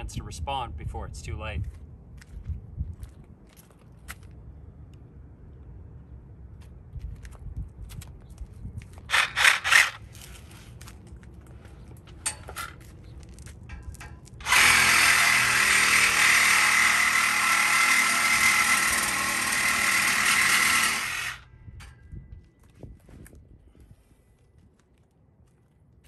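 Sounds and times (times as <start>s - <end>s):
reciprocating saw cutting metal pipe: 9.1s - 10.0s, 14.4s - 21.5s.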